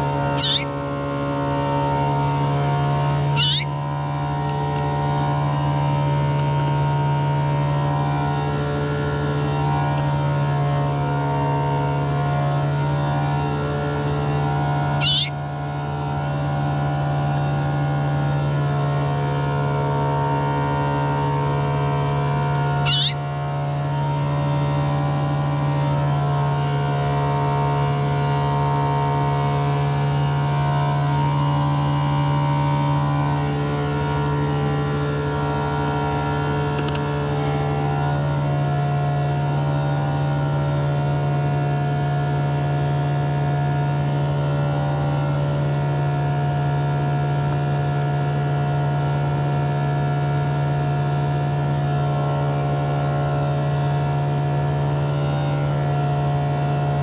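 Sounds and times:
low droning hum: 0.0 - 57.0.

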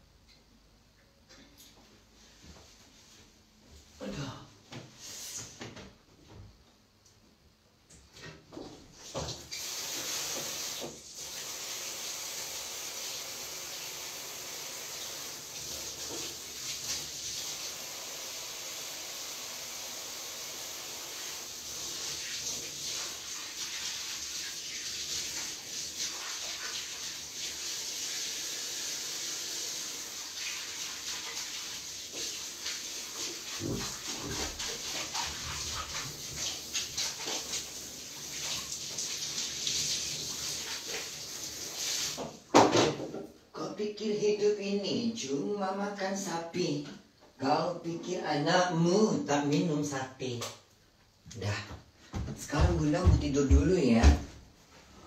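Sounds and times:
steady hissing noise: 9.5 - 23.6.

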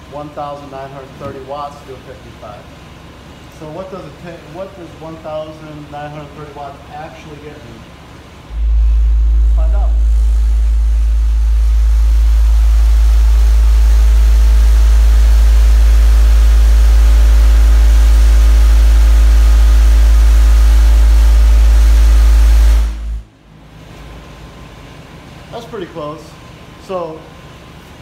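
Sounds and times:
deep bass test tone: 8.5 - 23.3.

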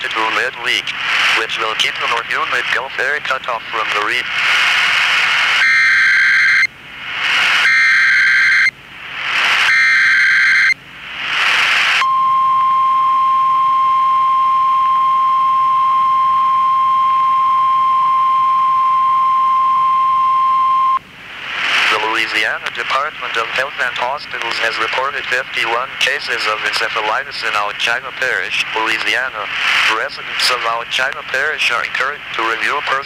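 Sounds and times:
steady alarm tone: 5.6 - 6.7, 7.6 - 8.7, 9.6 - 10.8, 12.0 - 21.0.

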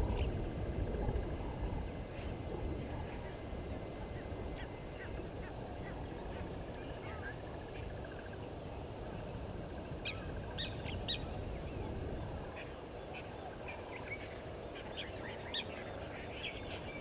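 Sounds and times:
low background noise: 0.0 - 17.0.

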